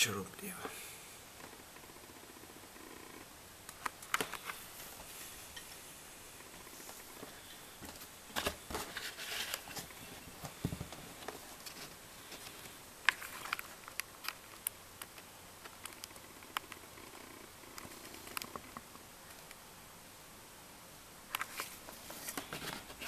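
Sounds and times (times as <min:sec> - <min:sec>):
handling rustles: 0:06.8 - 0:14.5, 0:21.4 - 0:23.0
small clicks: 0:13.0 - 0:16.9.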